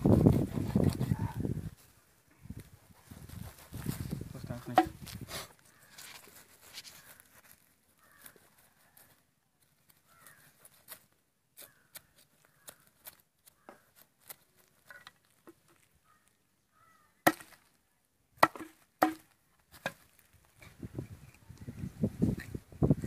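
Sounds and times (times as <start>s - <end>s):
knife chopping on wooden board: 4.7s - 5.0s.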